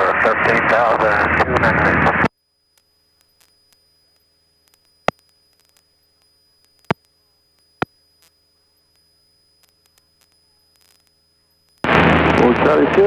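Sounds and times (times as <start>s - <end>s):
faint electrical hum: 0.0s - 13.0s
sharp radio clicks: 1.3s - 11.9s.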